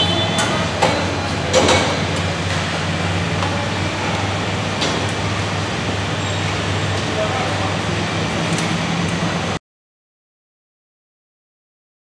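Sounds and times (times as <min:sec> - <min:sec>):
low mechanical hum: 0:00.0 - 0:09.6.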